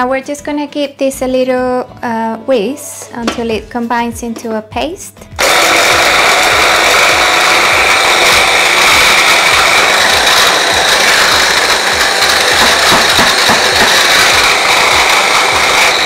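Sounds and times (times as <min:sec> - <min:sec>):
electric chopper motor whining: 0:05.4 - 0:16.0
pieces churning and knocking in bowl: 0:06.5 - 0:15.9.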